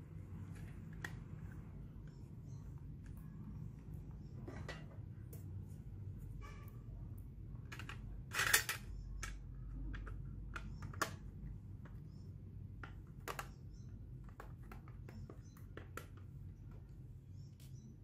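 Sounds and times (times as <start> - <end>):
plastic and metal clicks and taps: 8.7 - 12.0.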